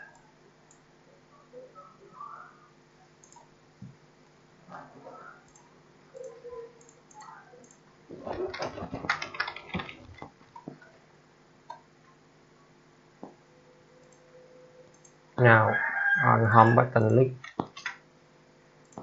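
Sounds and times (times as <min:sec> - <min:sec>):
computer keyboard typing: 0:03.2 - 0:03.5, 0:06.2 - 0:10.3, 0:14.9 - 0:15.2, 0:17.4 - 0:18.0.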